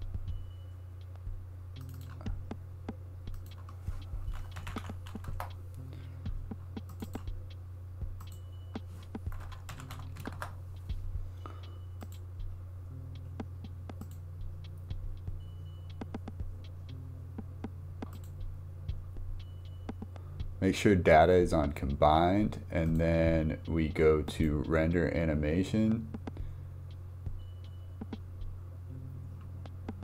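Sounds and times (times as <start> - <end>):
low electrical hum: 0.0 - 30.0
keyboard keystroke clicks: 1.8 - 2.4, 3.3 - 5.6, 6.8 - 7.3, 9.2 - 10.6.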